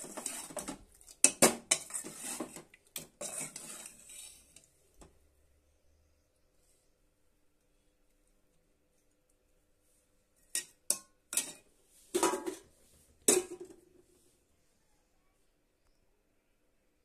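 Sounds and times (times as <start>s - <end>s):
metal plates and utensils clattering: 0.0s - 4.6s, 10.5s - 12.7s, 13.3s - 13.8s.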